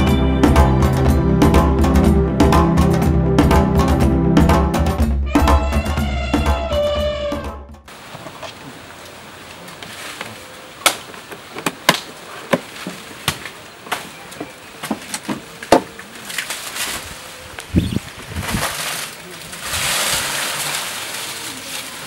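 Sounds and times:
faint steady hiss: 7.9 - 22.0.

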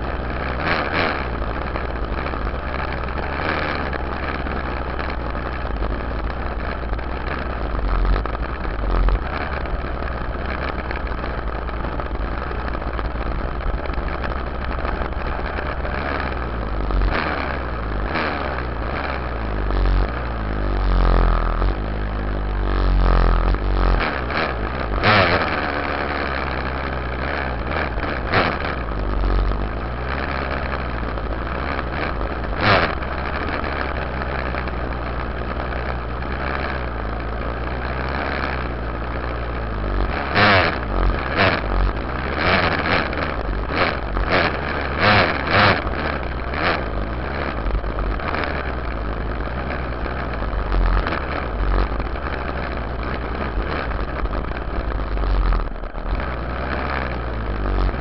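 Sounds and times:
dirt bike engine idling: 0.0 - 58.0.

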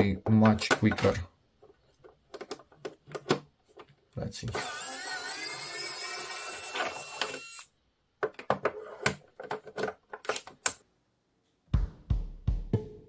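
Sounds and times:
electric screwdriver whirring: 4.5 - 7.7.

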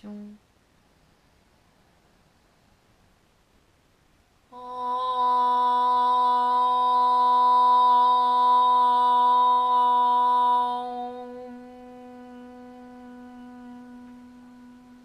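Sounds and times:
woman chanting om: 0.0 - 0.4, 4.5 - 15.0.

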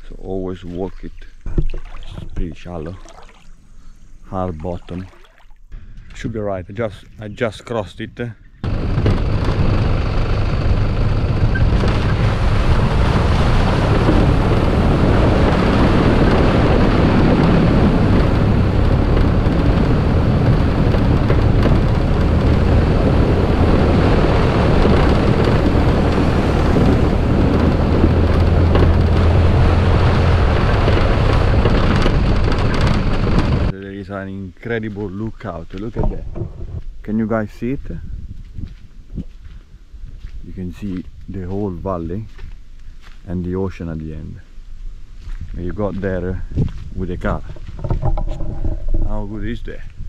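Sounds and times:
wind buffeting on microphone: 5.7 - 33.8, 35.0 - 43.7, 44.6 - 50.0
engine and tyre rumble: 8.6 - 33.8, 44.4 - 50.0.

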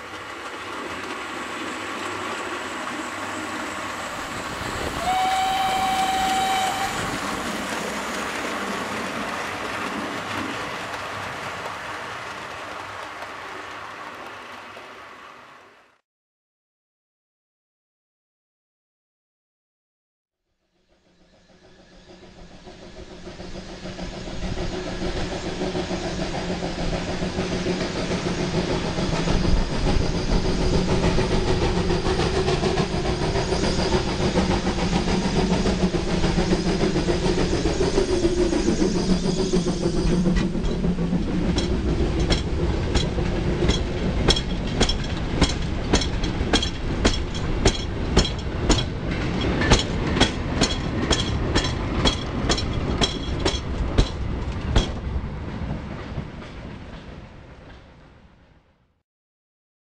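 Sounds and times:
wagons clickety-clack over rail joints: 0.0 - 2.7, 7.3 - 15.0, 24.0 - 58.0
steam locomotive working hard: 0.0 - 15.7, 20.9 - 58.0.

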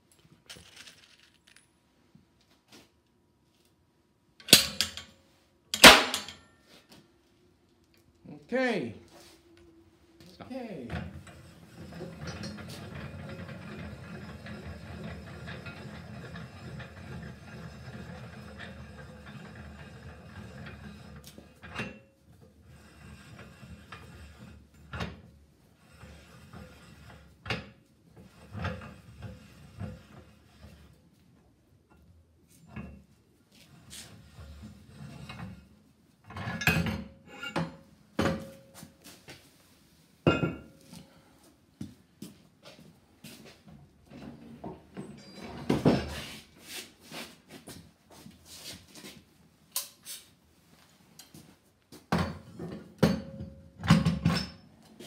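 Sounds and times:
metallic rattling and grinding: 0.5 - 1.7, 11.0 - 22.0
metallic knocks and clanking: 4.4 - 5.1, 5.8 - 6.5
sharp metal clunk: 4.4 - 5.1, 5.8 - 6.5.

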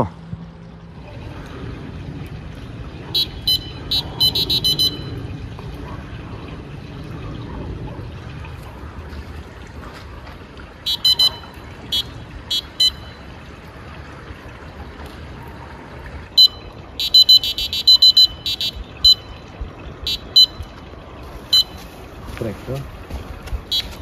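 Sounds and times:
bite alarm beeping: 3.2 - 5.2, 10.9 - 13.2, 16.4 - 20.8, 21.5 - 21.8, 23.7 - 24.0.

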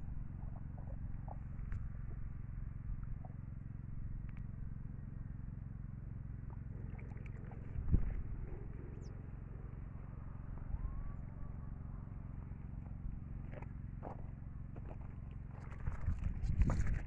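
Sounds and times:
small engine running: 0.0 - 17.0
faint light ticks: 4.2 - 4.5.

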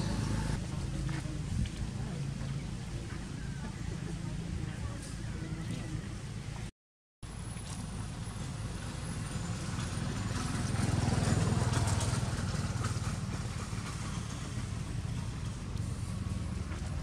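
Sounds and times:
motorbike engine running: 0.0 - 0.9, 9.0 - 17.0.

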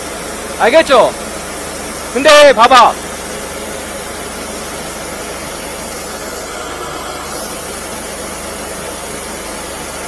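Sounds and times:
water jetting hiss: 4.3 - 9.3.

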